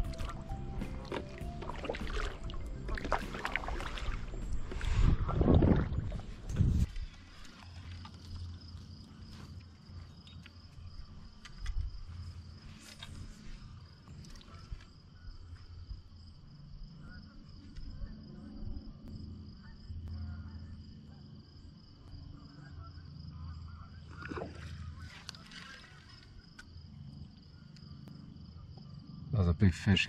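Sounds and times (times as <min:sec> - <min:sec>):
low rumble: 0:00.0 - 0:07.3
high-pitched insect chorus: 0:01.8 - 0:29.7.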